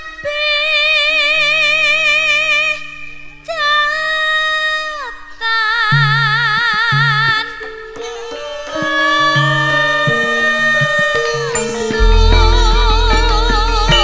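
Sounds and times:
backing band low tones: 0:10.0 - 0:14.0.

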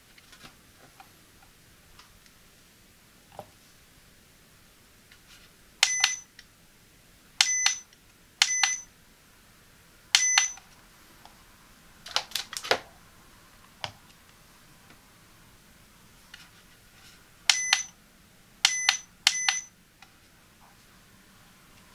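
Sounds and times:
short electronic beeps: 0:05.8 - 0:06.3, 0:07.4 - 0:08.9, 0:10.2 - 0:10.6, 0:17.5 - 0:17.9, 0:18.6 - 0:19.7.

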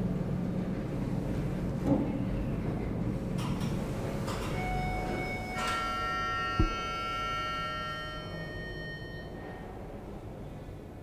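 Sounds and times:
elevator arrival chime: 0:04.5 - 0:09.9
low thump: 0:06.6 - 0:06.8.

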